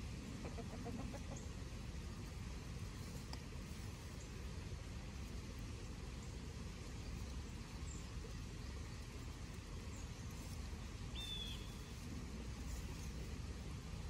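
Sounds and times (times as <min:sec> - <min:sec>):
low outdoor rumble: 0:00.0 - 0:14.0
faint bird chirps: 0:09.9 - 0:12.0.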